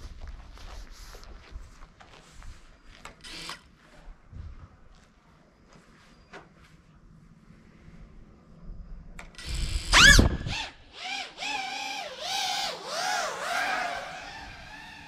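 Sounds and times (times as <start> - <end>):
drone motors whining: 9.3 - 15.0.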